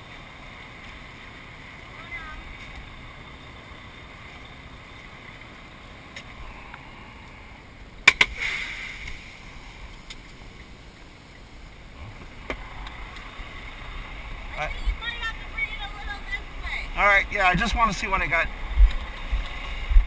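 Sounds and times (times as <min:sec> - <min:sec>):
diesel truck engine running: 0:00.0 - 0:20.0
short air hiss: 0:08.2 - 0:09.7.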